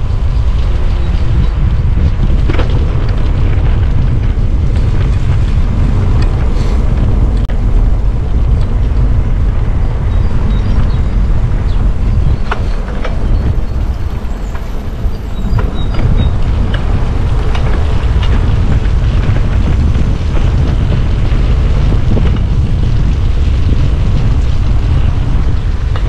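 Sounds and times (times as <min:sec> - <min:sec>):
small clicks and rattles: 0:00.0 - 0:07.5
tyre and road noise: 0:00.0 - 0:26.0
wind buffeting microphone: 0:00.0 - 0:26.0.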